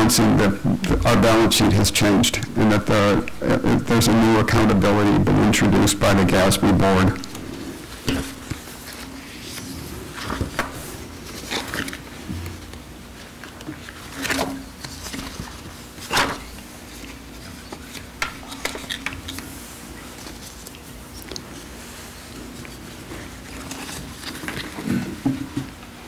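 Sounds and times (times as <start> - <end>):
steady low hum: 0.0 - 26.0
papers rustling: 7.2 - 21.7, 22.4 - 25.8.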